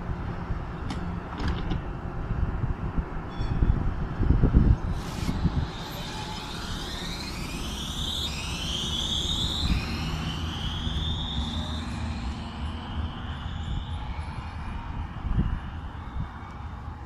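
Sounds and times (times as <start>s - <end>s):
low rumble of wheels: 0.0s - 17.0s
tram electric drive whining: 0.0s - 17.0s.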